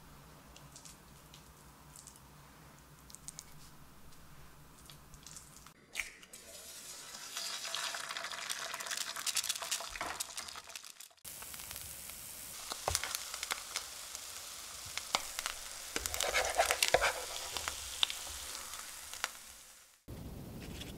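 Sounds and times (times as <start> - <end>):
egg sizzling in a pan: 5.1 - 20.1.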